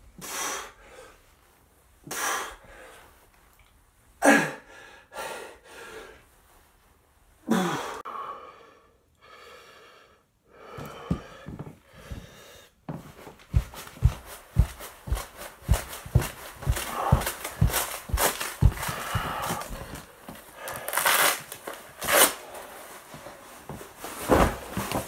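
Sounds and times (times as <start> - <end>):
person gasping breaths: 4.2 - 6.3, 7.4 - 12.9, 13.5 - 21.0
bare feet thumping on wooden floor: 10.7 - 20.4.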